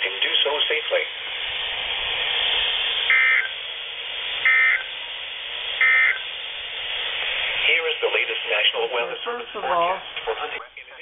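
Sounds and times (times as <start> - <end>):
radio hiss: 0.0 - 11.0
warbling data tones: 3.0 - 3.7, 4.4 - 5.0, 5.7 - 6.4.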